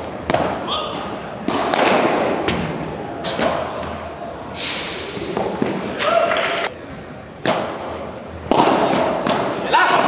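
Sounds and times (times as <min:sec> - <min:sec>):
padel ball struck by rackets: 0:01.4 - 0:02.7, 0:08.4 - 0:10.0
brief hiss: 0:04.6 - 0:05.4.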